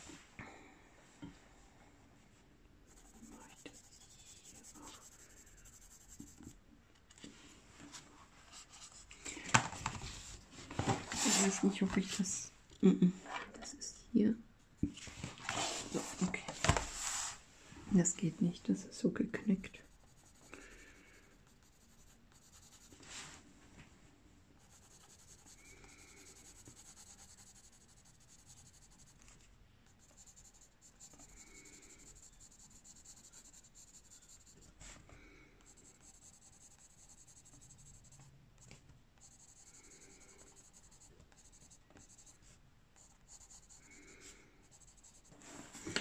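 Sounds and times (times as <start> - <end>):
pencil scratching on paper: 2.9 - 6.5, 19.8 - 23.0, 24.6 - 34.7, 35.6 - 42.4, 43.0 - 45.9.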